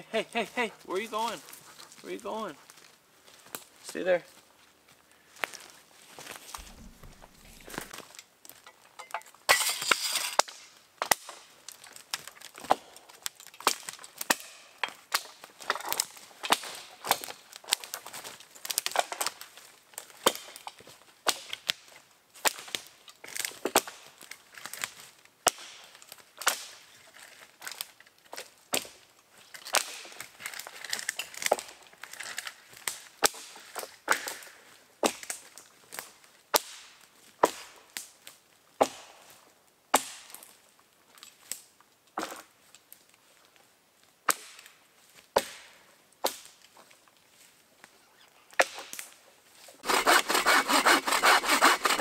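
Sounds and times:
footsteps crunching dry leaves: 5.4 - 7.9
brush crackling: 5.5 - 8.0, 48.9 - 52.0
twigs snapping: 6.6 - 8.0.

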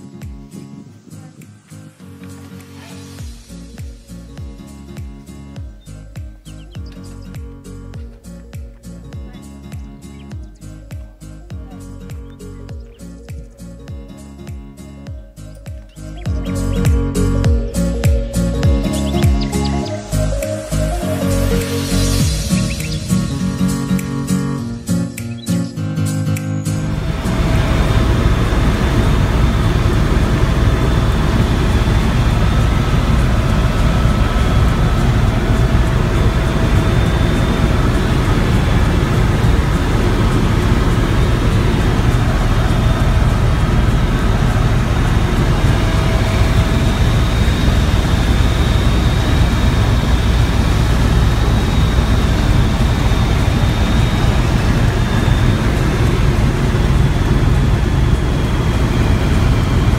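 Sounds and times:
helicopter rotor and engine drone: 5.2 - 25.7, 26.8 - 59.9
thin high whine: 16.7 - 59.9.

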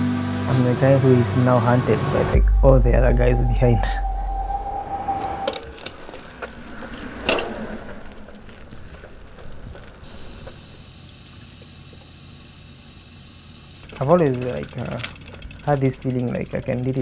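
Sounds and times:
wind and tyre noise: 2.3 - 13.2
bicycle sharp clicks: 13.7 - 17.0.

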